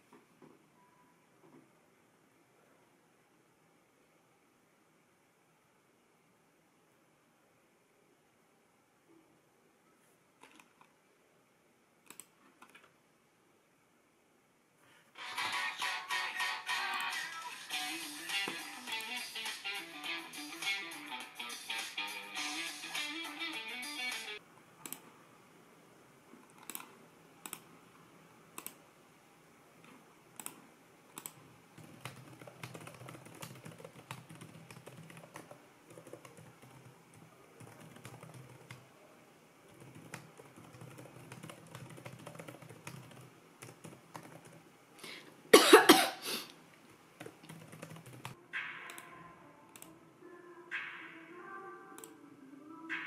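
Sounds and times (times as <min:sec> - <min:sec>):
laptop keyboard typing: 0:10.4 - 0:10.9, 0:26.4 - 0:27.7, 0:30.4 - 0:38.9, 0:39.7 - 0:44.7, 0:47.2 - 0:49.0
mouse clicks: 0:12.0 - 0:12.9, 0:24.8 - 0:25.1, 0:26.5 - 0:27.7, 0:28.6 - 0:28.8, 0:30.4 - 0:31.4, 0:49.7 - 0:49.9.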